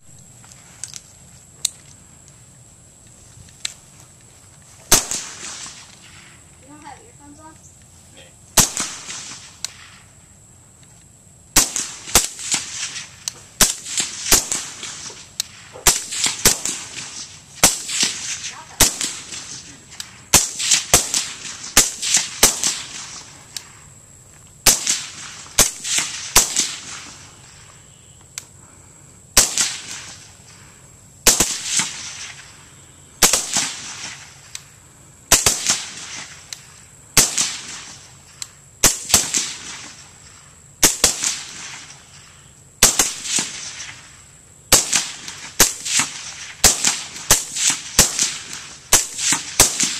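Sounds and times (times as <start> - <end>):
suppressed rifle shots: 4.9 - 6.0, 8.6 - 9.9, 11.6 - 23.7, 24.6 - 27.2, 29.4 - 30.2, 31.2 - 32.5, 33.2 - 34.3, 35.3 - 36.4, 37.2 - 38.0, 42.8 - 44.0, 44.7 - 49.9.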